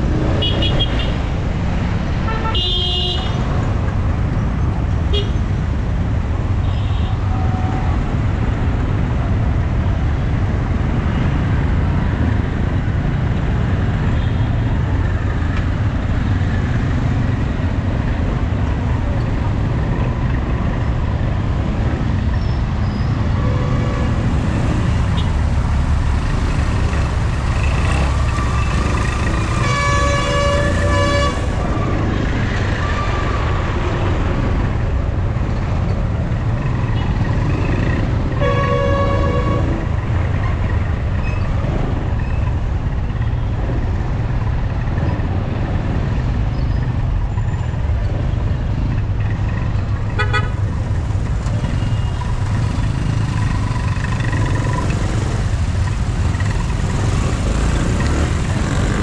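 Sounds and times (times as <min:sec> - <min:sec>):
motorcycle engines rumbling: 0:00.0 - 0:59.0
street traffic: 0:00.0 - 0:59.0
vehicle horns honking: 0:02.3 - 0:03.4, 0:29.4 - 0:31.8, 0:38.4 - 0:39.9, 0:50.2 - 0:50.6.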